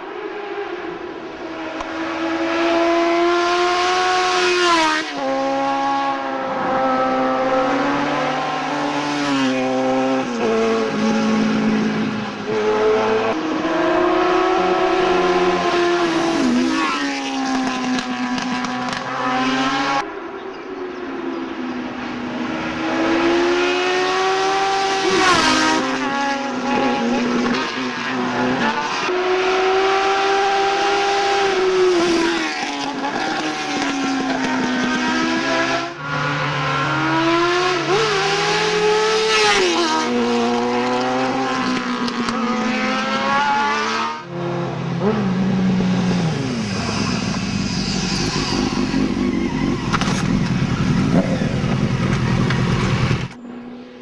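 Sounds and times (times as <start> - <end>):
motorcycle engines revving past: 22.0 - 54.0.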